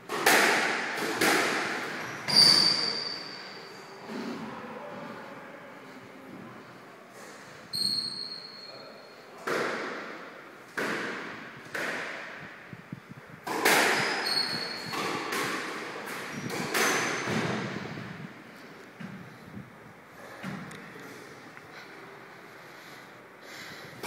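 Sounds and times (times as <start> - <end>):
squash ball hitting rackets and walls: 0.0 - 3.4, 9.4 - 18.2, 20.4 - 20.9
shoes squeaking on court floor: 1.7 - 4.4, 7.7 - 9.1, 13.9 - 18.0.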